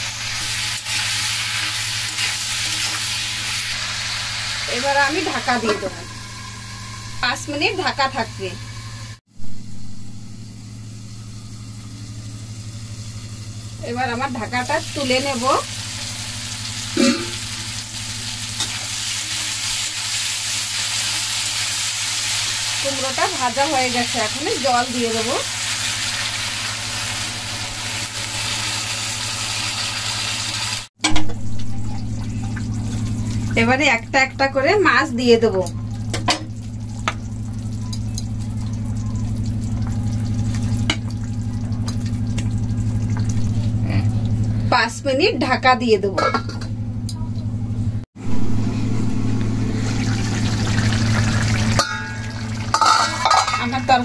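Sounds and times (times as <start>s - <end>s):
pumpkin sizzling in oil: 0.0s - 30.9s, 49.6s - 54.0s
steady low hum: 3.0s - 19.4s, 31.1s - 54.0s
metal spatula scraping: 51.8s - 53.8s.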